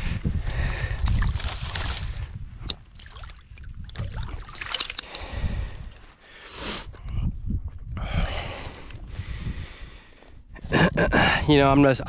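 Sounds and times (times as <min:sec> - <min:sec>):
water dripping: 0:02.7 - 0:05.1
muddy water sloshing: 0:02.7 - 0:05.2.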